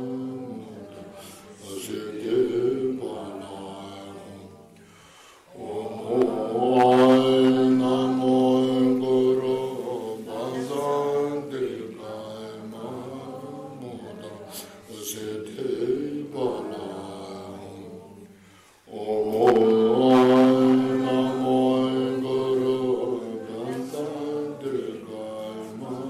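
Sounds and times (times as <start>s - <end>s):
voices chanting a prayer: 0.0s - 26.0s.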